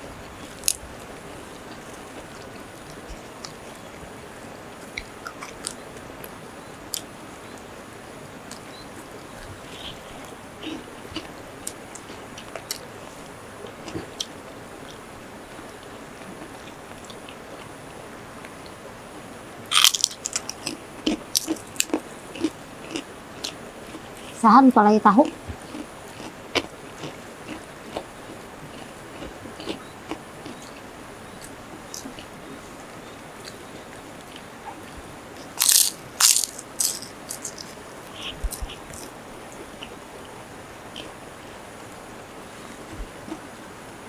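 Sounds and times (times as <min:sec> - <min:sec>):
crunching fried food: 0:19.7 - 0:24.4, 0:25.2 - 0:32.3, 0:35.4 - 0:39.2.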